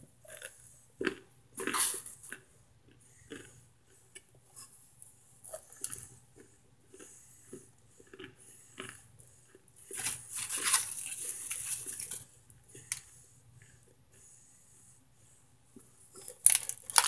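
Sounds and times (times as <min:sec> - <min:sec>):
crackling and crinkling paper: 0:09.9 - 0:13.0, 0:16.2 - 0:17.0.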